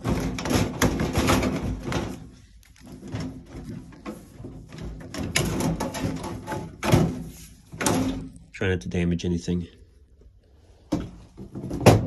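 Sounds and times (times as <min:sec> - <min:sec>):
sheet metal scraping and rattling: 0:00.0 - 0:08.4.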